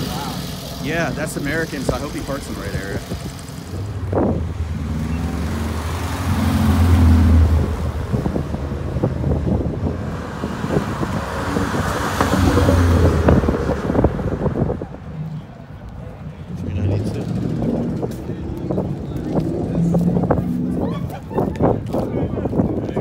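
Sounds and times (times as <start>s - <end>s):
cars driving past: 0.0s - 22.9s
wind buffeting microphone: 1.0s - 23.0s.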